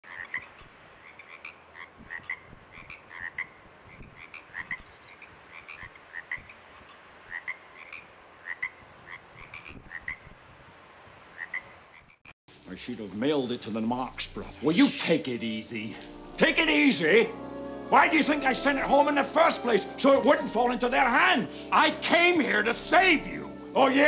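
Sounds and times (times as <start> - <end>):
faint hiss: 12.5 - 24.0.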